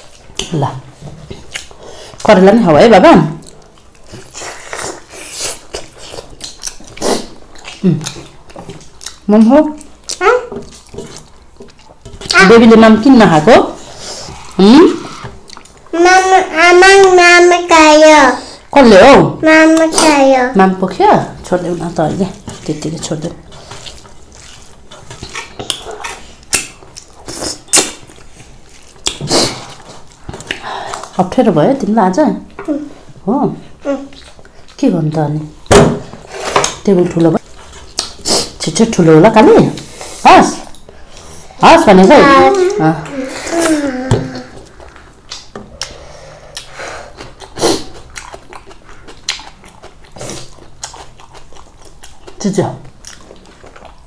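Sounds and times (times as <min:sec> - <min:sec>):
people chewing and smacking: 0:00.0 - 0:02.4, 0:03.3 - 0:12.4, 0:13.4 - 0:16.0, 0:21.4 - 0:41.5, 0:42.4 - 0:54.0
mouth eating sounds: 0:03.3 - 0:12.4, 0:13.8 - 0:17.7, 0:22.3 - 0:31.2, 0:36.3 - 0:38.7, 0:42.2 - 0:54.0.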